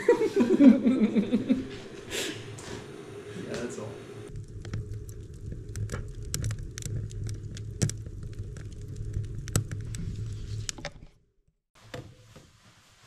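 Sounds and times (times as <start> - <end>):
low steady rumble: 0.1 - 11.2
wood fire crackling and popping: 3.4 - 11.2.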